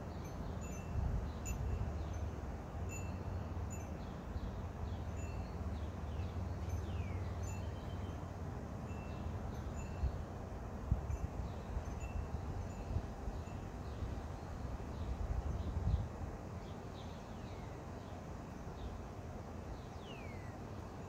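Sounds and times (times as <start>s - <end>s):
small birds chirping: 19.7s - 21.0s.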